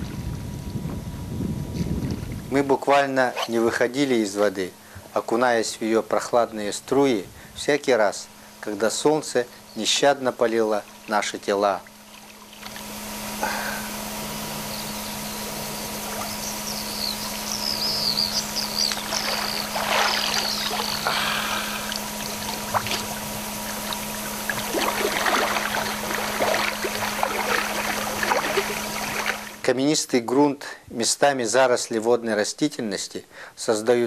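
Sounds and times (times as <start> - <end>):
water sloshing around wading person: 10.7 - 13.0, 15.9 - 29.6.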